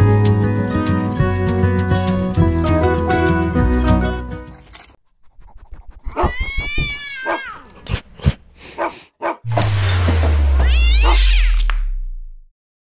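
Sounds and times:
cat meowing: 6.2s - 7.7s, 10.6s - 11.7s
deep falling whoosh: 9.5s - 12.5s.

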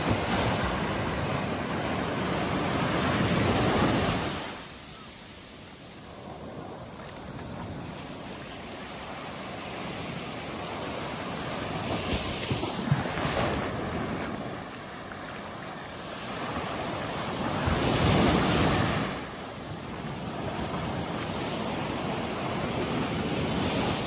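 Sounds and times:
small surf on sandy beach: 0.0s - 24.0s.

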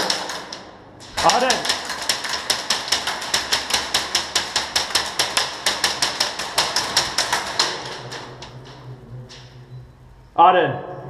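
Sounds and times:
rapid airsoft gun fire: 0.0s - 8.5s.

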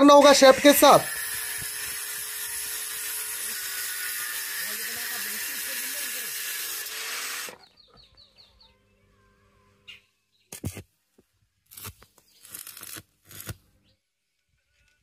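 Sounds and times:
harsh workshop tool noise: 0.0s - 7.7s, 11.7s - 13.6s.

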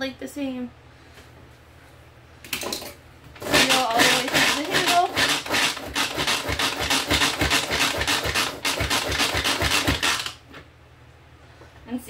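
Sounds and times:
manual food processor whirring: 3.4s - 10.4s.

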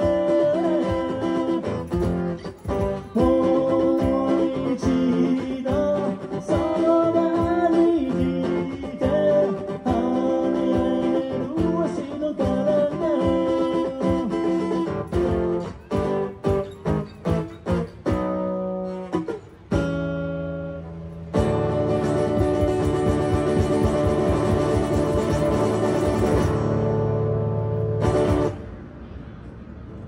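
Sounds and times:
acoustic guitar playing: 0.0s - 28.8s.

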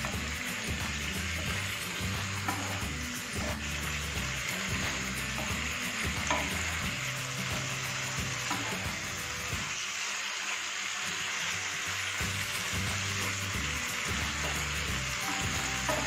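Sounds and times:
spatula scraping a pan: 0.0s - 9.6s
food sizzling in a frying pan: 0.0s - 16.0s.

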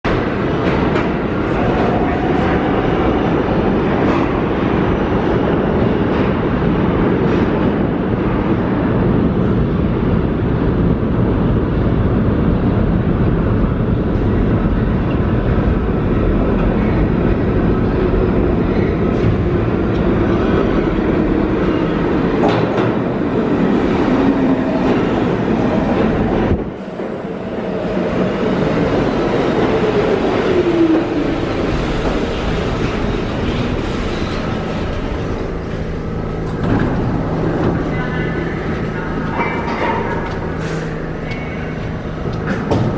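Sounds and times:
subway train wheels on rails: 0.0s - 42.9s.

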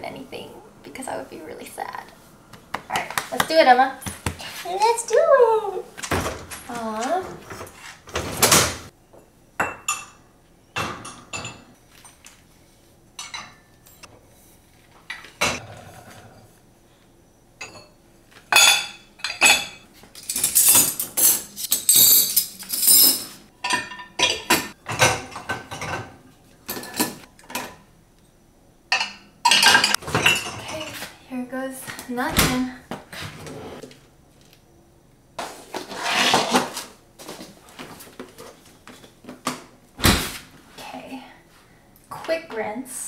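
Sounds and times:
dishes clinking and clattering: 7.4s - 12.2s, 17.6s - 27.9s, 28.9s - 31.0s.

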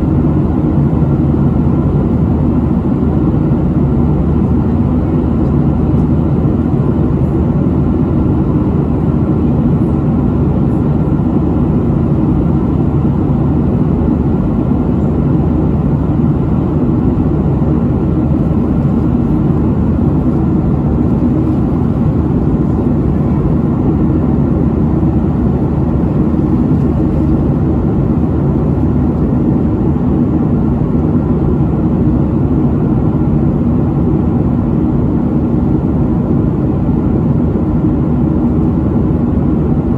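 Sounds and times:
jet engines: 0.0s - 39.9s.

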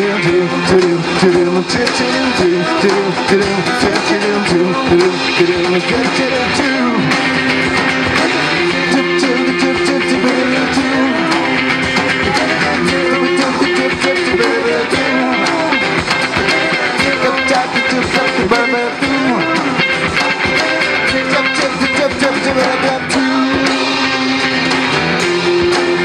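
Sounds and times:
drums: 0.0s - 26.0s
electric guitar: 0.0s - 26.0s
strummed acoustic guitar: 0.0s - 26.0s.

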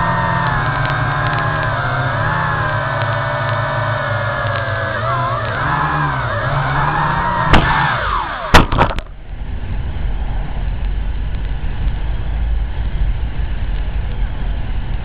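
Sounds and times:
drone propellers whining: 0.0s - 15.0s
steady rumbling noise: 0.0s - 15.0s
drone knocking on the ground: 8.6s - 9.6s.

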